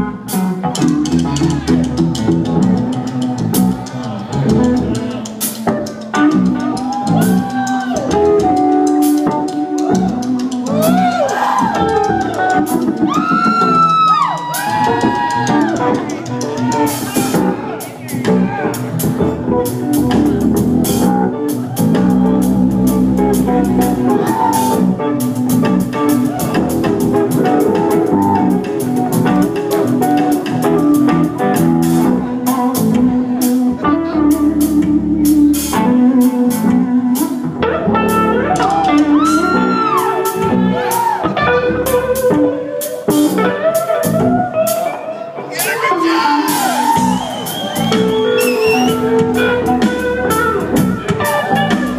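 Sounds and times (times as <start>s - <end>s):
electric bass: 0.0s - 44.8s, 46.6s - 51.9s
distorted electric guitar: 0.0s - 51.9s
drum kit: 0.0s - 51.9s.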